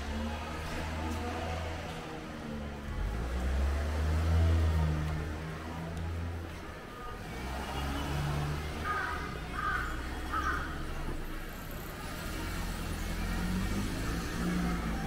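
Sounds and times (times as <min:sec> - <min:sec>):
car engines humming: 0:00.0 - 0:15.0
crow cawing: 0:08.8 - 0:10.9.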